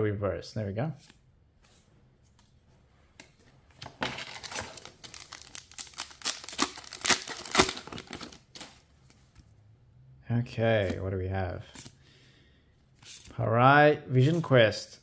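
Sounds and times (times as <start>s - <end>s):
foil wrapper crinkling: 4.2s - 8.8s
sharp foil crack: 5.3s - 8.0s.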